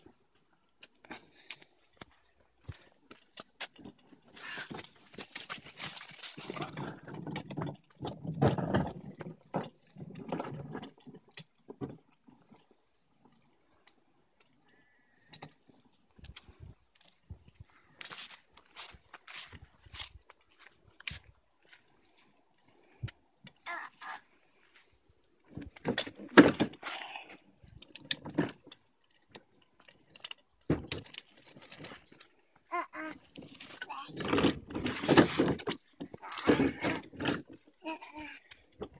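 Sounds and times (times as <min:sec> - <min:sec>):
wheels knocking over slab joints: 0:02.6 - 0:13.5, 0:25.4 - 0:38.9
plastic toy wheels rolling on concrete: 0:03.1 - 0:14.5, 0:25.5 - 0:38.9.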